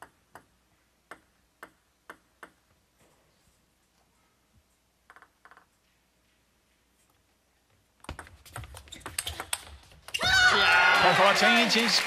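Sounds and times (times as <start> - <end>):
table tennis ball bouncing: 0.0 - 2.7, 5.0 - 5.8, 8.0 - 10.2.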